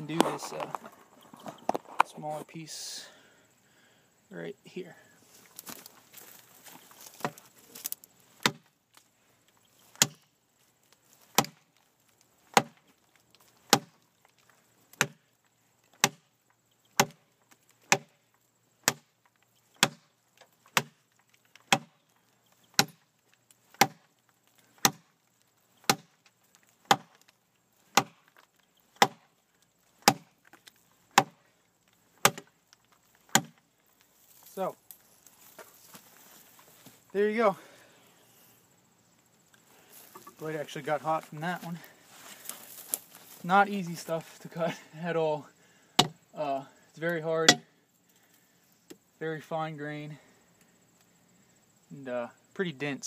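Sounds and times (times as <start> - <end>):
knife chopping hard wood: 8.4 - 8.7, 10.0 - 10.2, 11.3 - 11.6, 12.5 - 12.8, 13.7 - 14.0, 15.0 - 15.2, 16.0 - 16.3, 17.0 - 17.2, 17.8 - 18.2, 18.8 - 19.1, 19.8 - 20.1, 20.7 - 21.0, 21.7 - 21.9, 22.7 - 23.0, 23.7 - 24.1, 24.8 - 25.1, 25.8 - 26.1, 26.8 - 27.2, 27.9 - 28.2, 29.0 - 29.3, 30.0 - 30.3, 31.1 - 31.4, 32.2 - 32.5, 33.3 - 33.6, 46.0 - 46.2.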